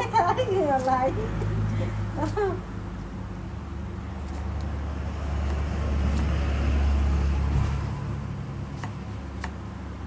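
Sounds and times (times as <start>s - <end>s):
motor vehicle passing: 0.0s - 10.0s.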